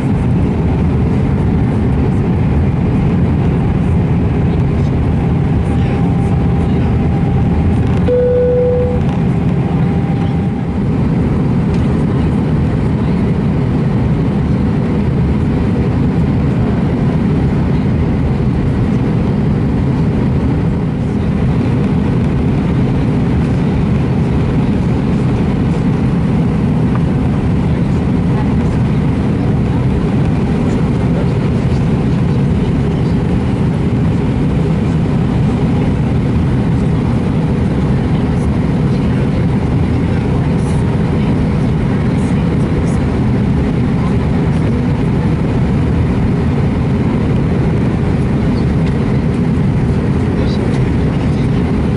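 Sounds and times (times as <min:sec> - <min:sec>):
jet engines roaring: 0:00.0 - 0:51.9
short clear tone: 0:08.1 - 0:10.6.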